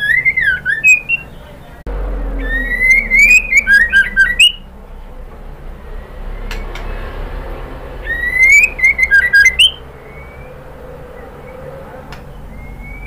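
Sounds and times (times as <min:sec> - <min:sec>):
bird calling with whistle and notes: 0:00.0 - 0:04.7, 0:08.0 - 0:13.0.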